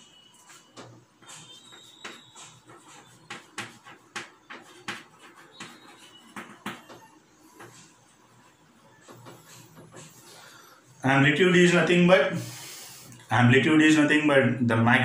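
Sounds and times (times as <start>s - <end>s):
chalk tapping and scraping on blackboard: 0.4s - 10.6s.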